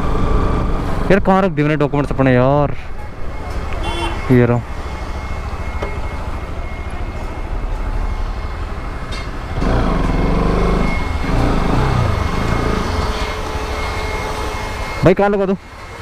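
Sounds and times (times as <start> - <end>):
motorcycle engine running: 9.6 - 13.7.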